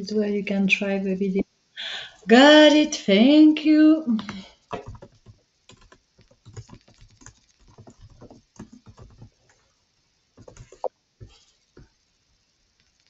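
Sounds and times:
typing on computer keyboard: 0:04.7 - 0:09.6, 0:10.4 - 0:10.9.

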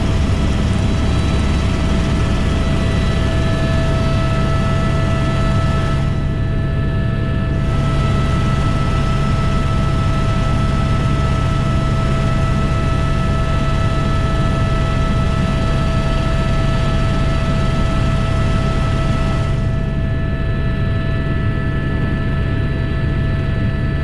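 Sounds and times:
high whine: 0:00.0 - 0:12.1
helicopter rotor and engine drone: 0:00.0 - 0:24.0.

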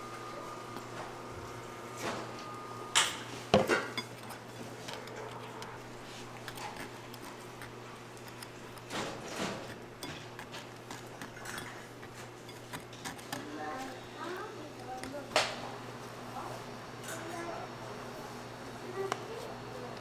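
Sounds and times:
steady low hum: 0:00.0 - 0:20.0
utensils and cookware clinking: 0:03.0 - 0:05.7.

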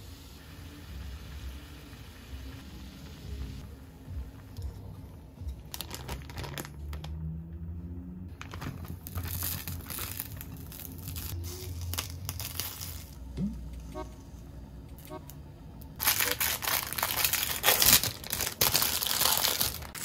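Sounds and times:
plastic packet crinkling and tearing: 0:05.7 - 0:07.2, 0:08.3 - 0:13.2, 0:16.0 - 0:20.0.

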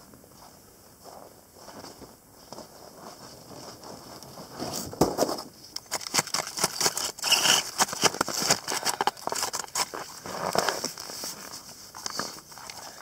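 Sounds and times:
toboggan scraping on snow: 0:06.0 - 0:12.5.

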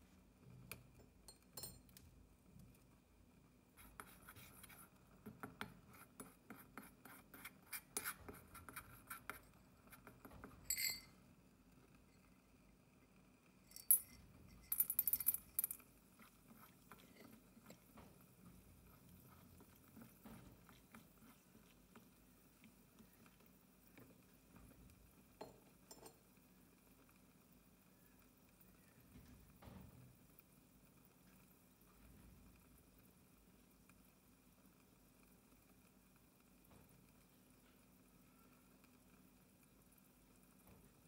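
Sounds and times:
ringing clink: 0:10.7 - 0:11.1.

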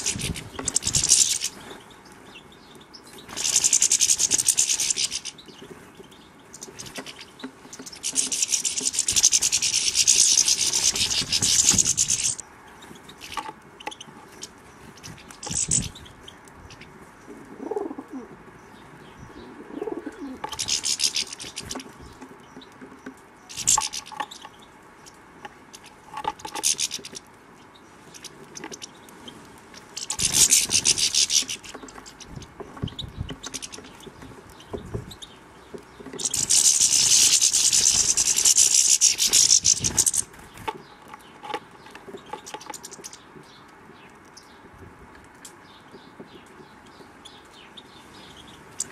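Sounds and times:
goldfinches twittering: 0:00.0 - 0:01.9, 0:02.7 - 0:05.6, 0:06.5 - 0:16.8, 0:29.7 - 0:41.4
small garden birds: 0:00.0 - 0:48.9.

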